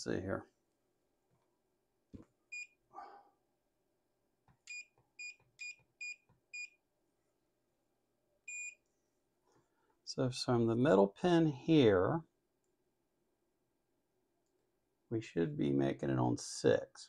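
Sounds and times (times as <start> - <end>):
multimeter beeping: 4.7 - 6.8, 8.5 - 8.8.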